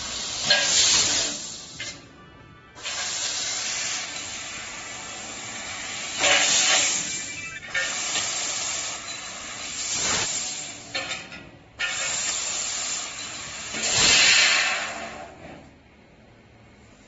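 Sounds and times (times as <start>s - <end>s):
assist-gas jet hissing: 0.0s - 2.0s, 2.8s - 10.9s.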